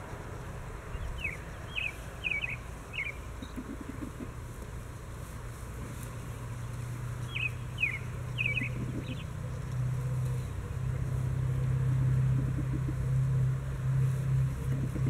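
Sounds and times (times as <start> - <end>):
low motor hum: 0.0 - 15.0
bird chirping: 0.9 - 4.1, 7.2 - 9.4.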